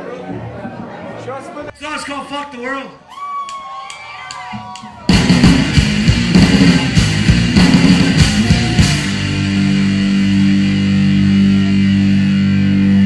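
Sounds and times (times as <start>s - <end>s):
rock band playing: 4.5s - 13.0s.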